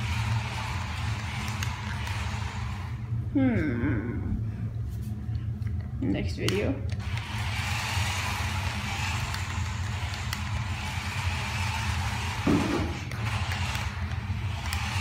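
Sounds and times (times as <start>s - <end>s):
toy truck electric motor whining: 0.0s - 3.1s, 7.0s - 15.0s.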